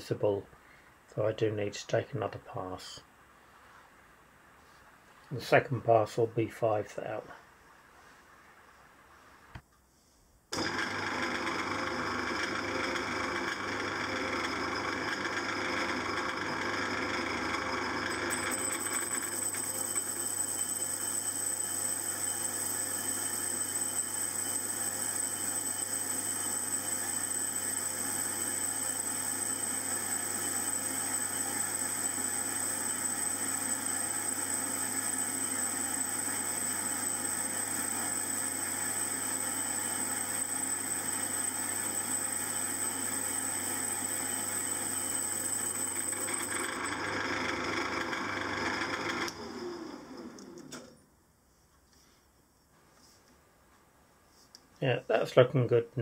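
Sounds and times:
metal lathe running: 10.6 - 50.8.

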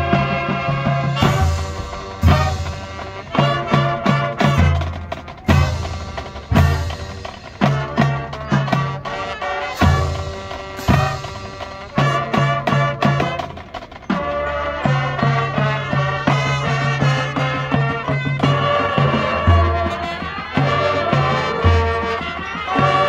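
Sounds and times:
marching band brass: 0.0 - 23.0
sharp drum hits: 1.2 - 8.5, 9.8 - 12.6.

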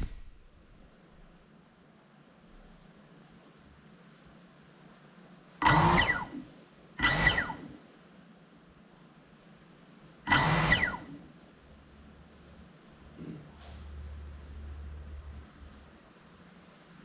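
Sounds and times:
drone motors whining: 5.6 - 7.8, 10.3 - 11.2.

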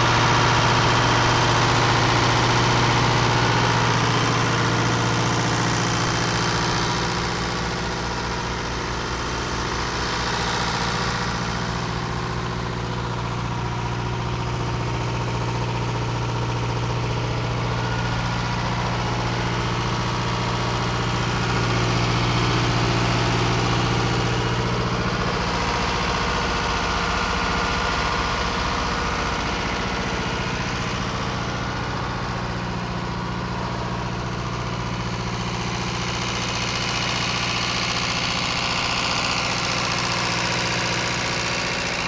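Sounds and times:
diesel engine idling: 0.0 - 42.0.

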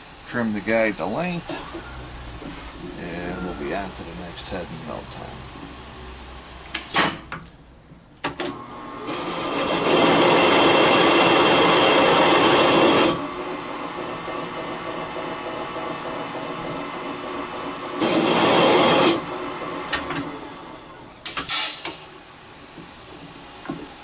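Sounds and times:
spindle cutter cutting metal: 8.6 - 21.3
high whine: 11.6 - 21.4.

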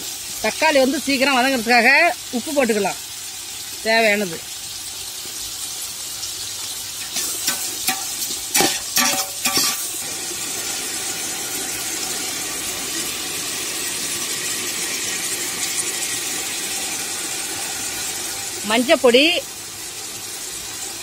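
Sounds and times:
vegetables sizzling in oil: 0.0 - 21.0
spoon scraping a metal pot: 7.0 - 10.0.

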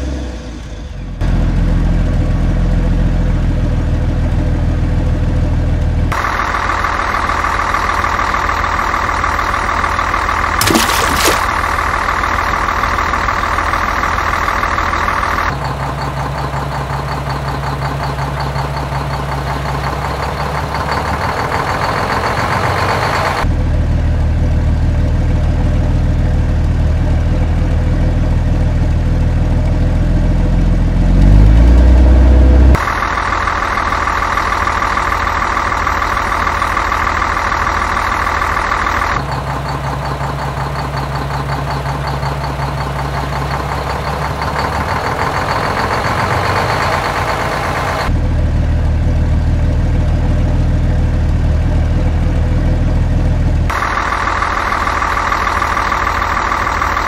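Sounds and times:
truck engine idling: 1.0 - 10.6, 11.4 - 30.8, 32.4 - 57.0
truck engine revving: 30.4 - 35.8.

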